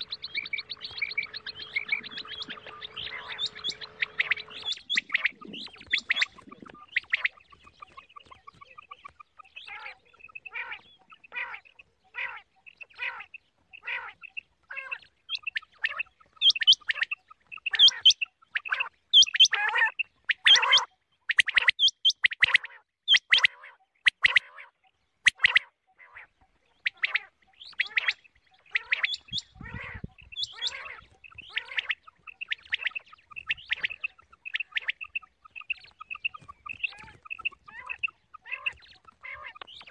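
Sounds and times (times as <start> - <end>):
quail calling: 0.0 - 39.9.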